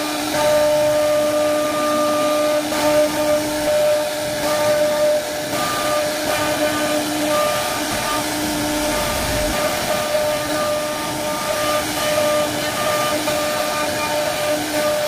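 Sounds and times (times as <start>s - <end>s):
hiss of cutting: 0.0s - 15.0s
router spindle whining: 0.0s - 15.0s.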